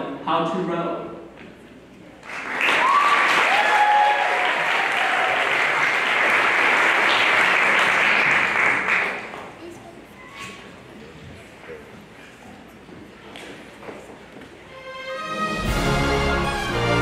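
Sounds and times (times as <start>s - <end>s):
audience applauding: 2.2s - 9.6s
brief cheers: 2.6s - 5.6s.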